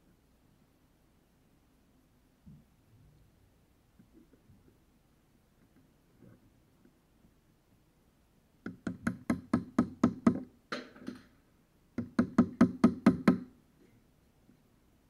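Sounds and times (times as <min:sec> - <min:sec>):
rapid knocks on screwdriver: 0:08.6 - 0:11.3, 0:12.0 - 0:13.5.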